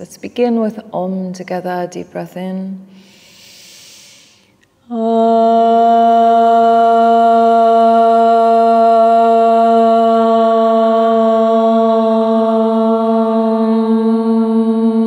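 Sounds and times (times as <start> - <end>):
in-breath: 2.9 - 4.6
woman chanting om: 4.8 - 15.0.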